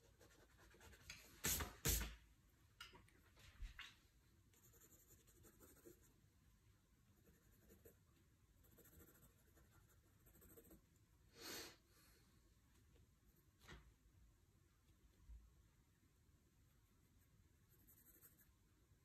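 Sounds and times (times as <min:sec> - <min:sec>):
pencil drawing on paper: 0:00.0 - 0:02.1, 0:04.6 - 0:06.1, 0:07.2 - 0:08.0, 0:08.6 - 0:10.8, 0:17.7 - 0:18.5.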